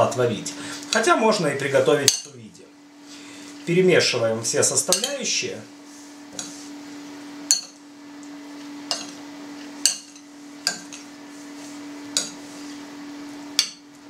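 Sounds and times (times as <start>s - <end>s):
steady low hum: 0.0s - 14.0s
metal spoon clinking on glass: 7.5s - 7.8s, 8.9s - 9.1s.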